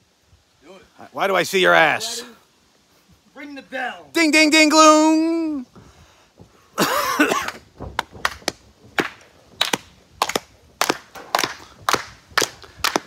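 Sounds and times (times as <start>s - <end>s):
sharp claps: 7.4s - 13.0s.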